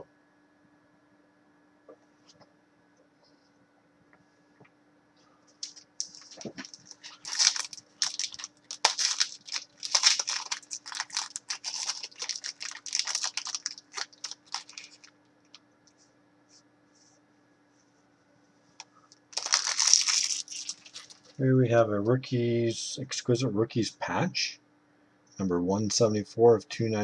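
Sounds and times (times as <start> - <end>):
plastic packaging crinkling: 5.5 - 15.1, 19.2 - 21.4.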